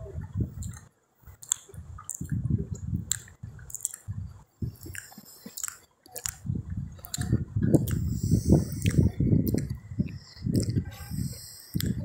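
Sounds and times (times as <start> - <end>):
chewing and wet mouth sounds: 0.2 - 12.0
sharp mouth smacks: 1.4 - 2.4, 3.1 - 6.4, 7.0 - 9.8, 10.5 - 12.0.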